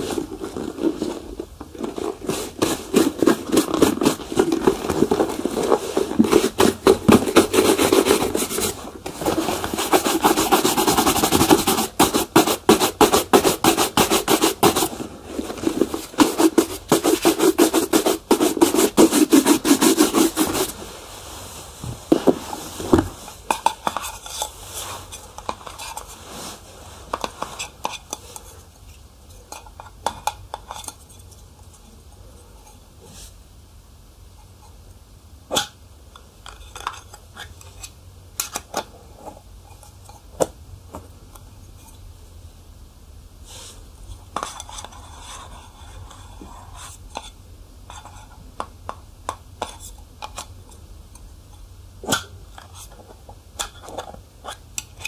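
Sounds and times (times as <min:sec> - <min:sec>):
brush rubbing on leather: 0:02.1 - 0:23.2.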